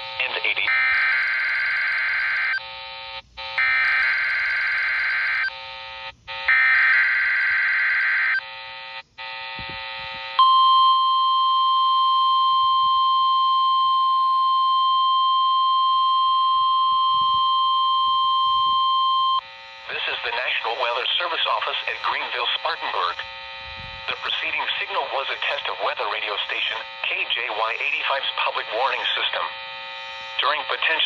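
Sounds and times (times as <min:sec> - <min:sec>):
steady warning alarm tone: 0:00.0 - 0:31.0
buzzy data burst screech: 0:19.4 - 0:31.0.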